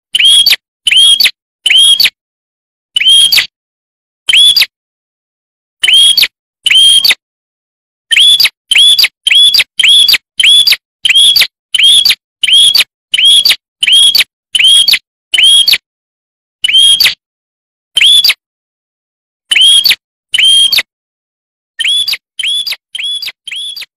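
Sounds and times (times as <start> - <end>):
bird chirps sweeping upward: 21.8 - 23.9
chicks calling: 21.8 - 23.9.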